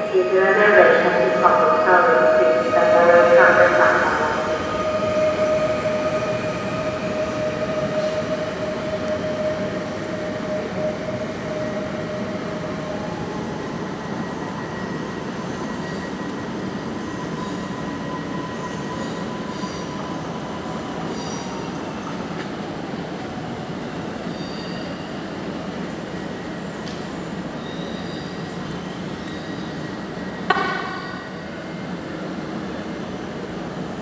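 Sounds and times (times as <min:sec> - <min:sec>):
station rumble: 0:00.0 - 0:13.3
electric train running noise: 0:00.0 - 0:21.4.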